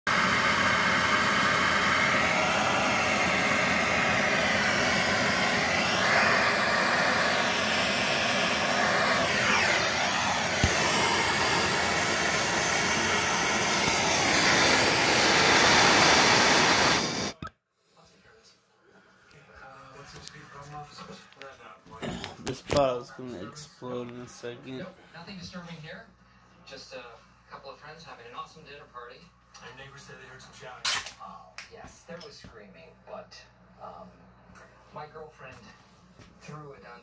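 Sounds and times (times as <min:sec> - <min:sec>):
gas torch flame hissing: 0:00.1 - 0:17.4.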